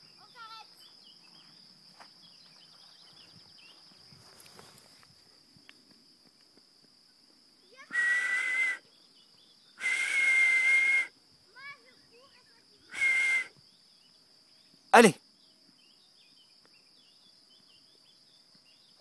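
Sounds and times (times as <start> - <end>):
whistle blown: 7.9 - 8.8, 9.8 - 11.1, 12.9 - 13.5.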